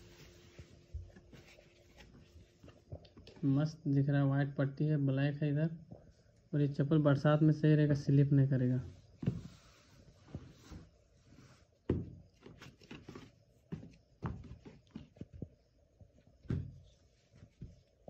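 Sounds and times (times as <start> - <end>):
soft thumps of flip-flops: 9.2 - 10.9, 11.8 - 15.7, 16.4 - 18.0.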